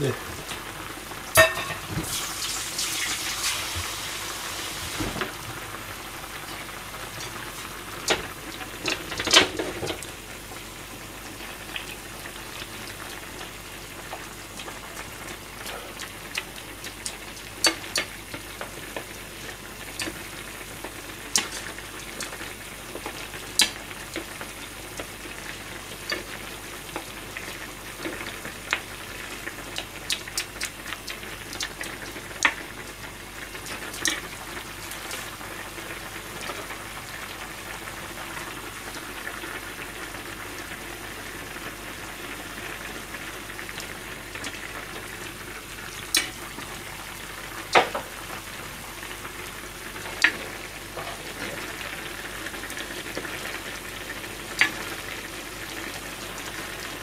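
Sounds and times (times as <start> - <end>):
food boiling and sizzling: 0.0 - 57.0
ladle knocking against a pan: 1.4 - 2.0.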